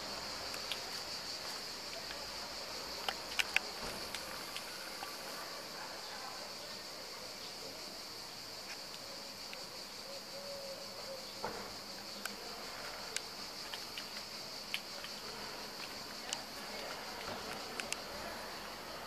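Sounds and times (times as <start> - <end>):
faint clicks: 0.4 - 2.3, 3.0 - 5.3, 12.2 - 18.8.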